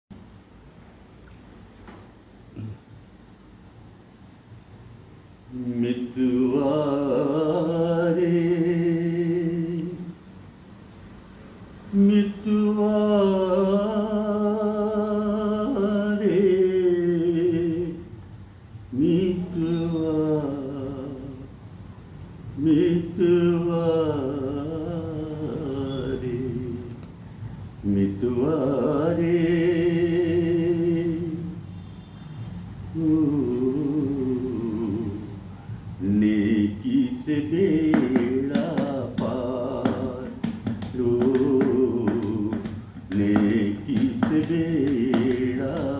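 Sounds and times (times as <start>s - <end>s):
man singing unaccompanied: 5.4s - 10.3s, 11.8s - 21.7s, 22.4s - 27.2s, 27.8s - 31.7s, 32.9s - 45.9s
sharp taps: 37.9s - 45.9s.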